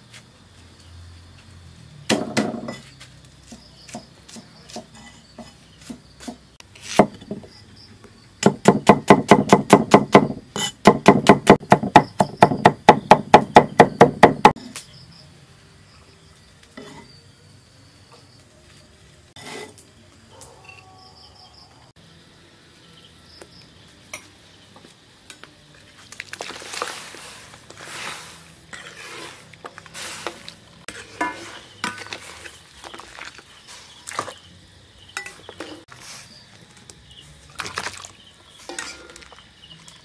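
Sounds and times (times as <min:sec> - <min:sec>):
cleaver chopping on wooden block: 0:06.2 - 0:07.4, 0:08.4 - 0:14.6.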